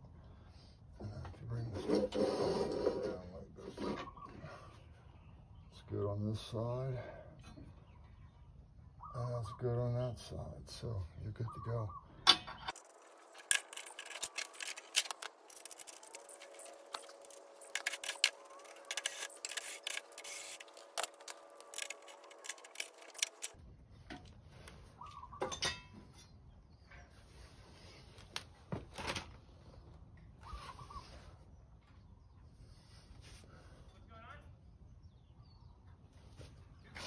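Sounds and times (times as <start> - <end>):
metal mower blades clicking: 12.3 - 23.6.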